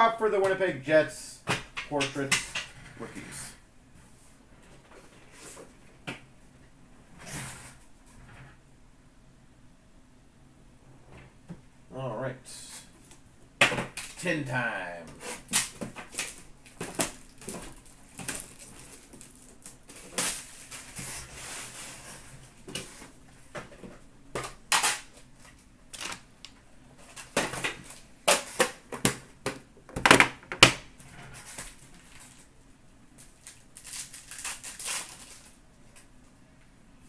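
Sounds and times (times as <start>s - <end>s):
foil wrapper crinkling: 15.3s - 22.2s, 33.2s - 35.6s.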